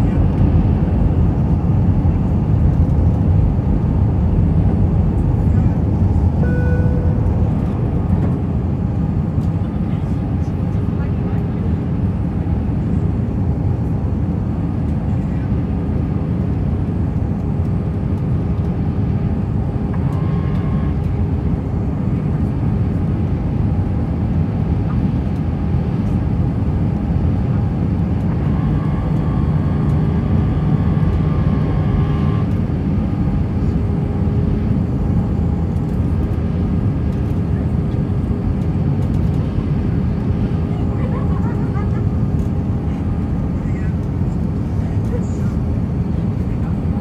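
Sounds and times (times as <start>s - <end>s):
jet engine rumble in cabin: 0.0s - 47.0s
higher tone: 6.3s - 7.8s.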